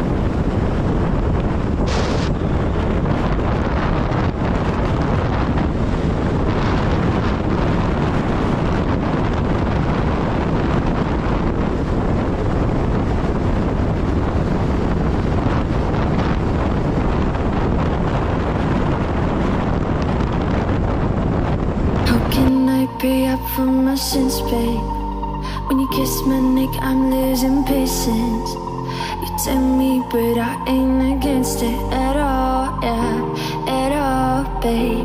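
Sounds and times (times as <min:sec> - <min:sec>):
motorcycle noise: 0:00.0 - 0:23.0
wind buffeting microphone: 0:00.0 - 0:35.0.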